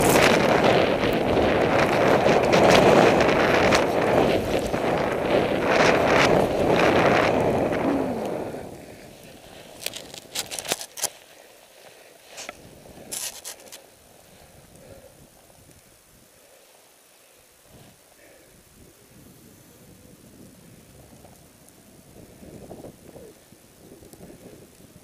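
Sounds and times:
rush of air over microphone: 0:00.0 - 0:10.5
skis hissing in snow: 0:00.0 - 0:15.6, 0:16.2 - 0:21.0.

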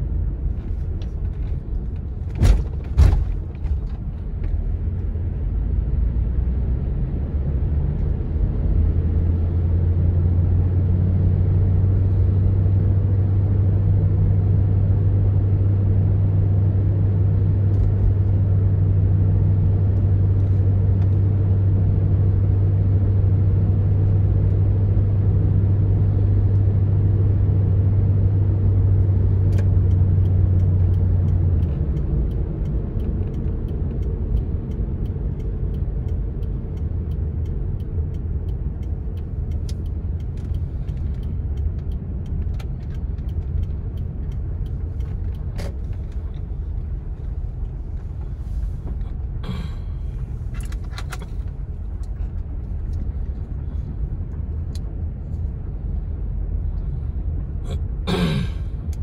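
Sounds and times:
car engine and tyre rumble: 0:00.0 - 0:59.0
light ticks: 0:29.5 - 0:49.7, 0:50.4 - 0:55.8.

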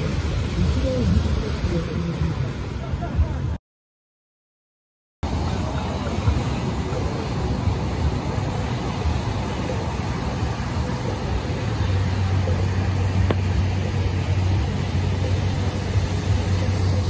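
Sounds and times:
ocean surf breaking ashore: 0:00.0 - 0:03.6
wind rumbling on microphone: 0:00.0 - 0:03.6.

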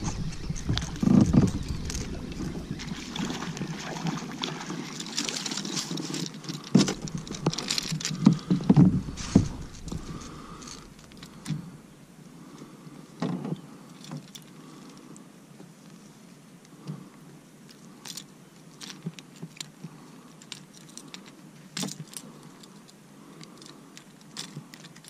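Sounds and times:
water splashes: 0:00.0 - 0:11.7
knocks and thumps in plastic kayak: 0:06.8 - 0:10.1.

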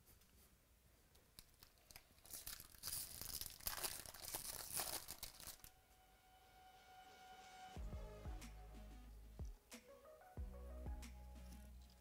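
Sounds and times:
foil wrapper tearing and crinkling: 0:01.4 - 0:05.8.

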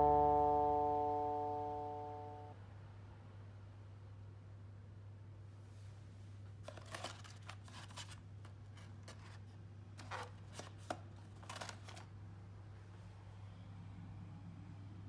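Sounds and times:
steady low hum: 0:00.0 - 0:05.6
cardboard scraping and rubbing: 0:06.7 - 0:12.0.

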